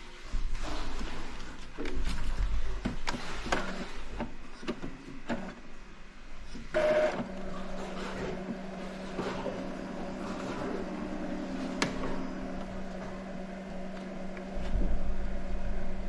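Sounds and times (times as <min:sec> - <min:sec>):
printer motor whine and hum: 0:01.8 - 0:16.0.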